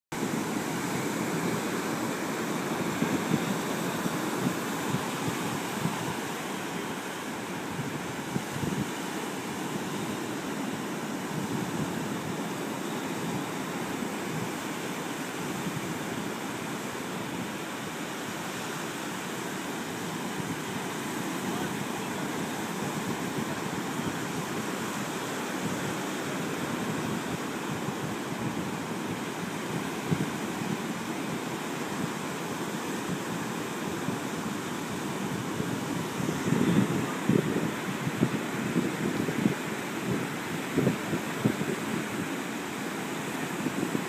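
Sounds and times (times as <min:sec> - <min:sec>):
ocean surf washing: 0:00.1 - 0:44.0.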